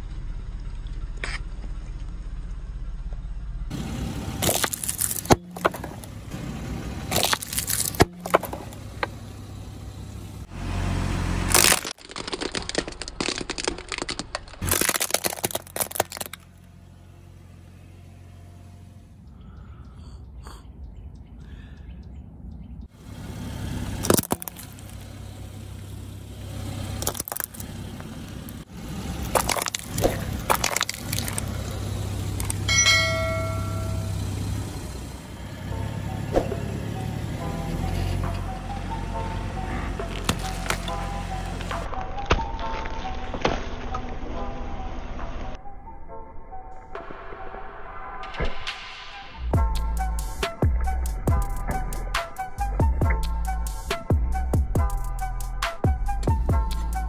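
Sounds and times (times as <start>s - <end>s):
idling car hum: 0.0s - 48.1s, 49.4s - 57.0s
plastic cracking under car tyre: 4.4s - 6.1s, 7.1s - 9.1s, 11.5s - 16.6s, 24.0s - 25.0s, 27.0s - 28.6s, 29.2s - 32.6s, 40.1s - 41.0s.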